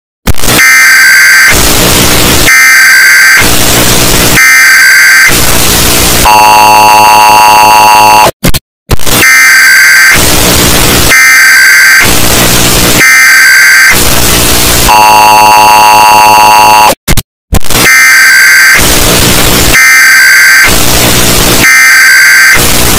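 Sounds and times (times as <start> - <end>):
distorted emergency alert alarm: 0.4 - 8.4, 9.0 - 17.0, 17.7 - 22.9.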